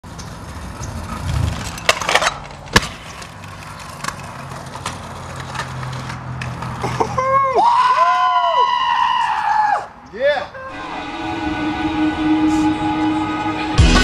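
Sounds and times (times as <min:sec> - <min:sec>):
scooter wheels rolling on asphalt: 0:00.0 - 0:10.0
scooter clacks: 0:00.1 - 0:07.2.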